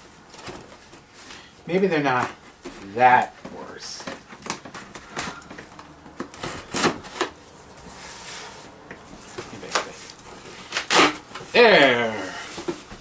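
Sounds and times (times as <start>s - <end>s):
scissors cutting packing tape: 9.6s - 11.4s.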